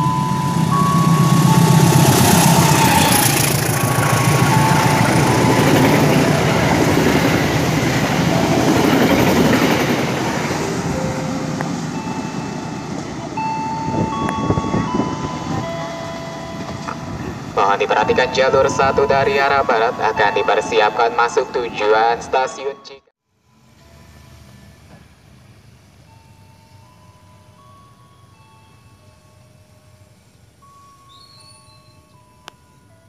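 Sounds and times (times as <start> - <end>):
train rumbling and clattering: 0.0 - 21.0.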